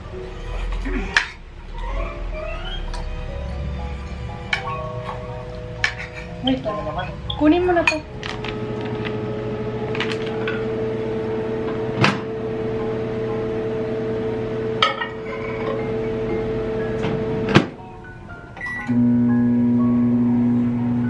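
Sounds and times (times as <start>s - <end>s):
kitchen appliance humming: 6.9s - 17.7s, 18.9s - 21.0s.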